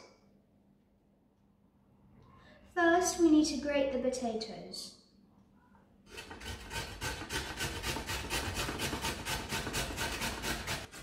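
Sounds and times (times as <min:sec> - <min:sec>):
potato grating on metal grater: 0:06.1 - 0:11.0.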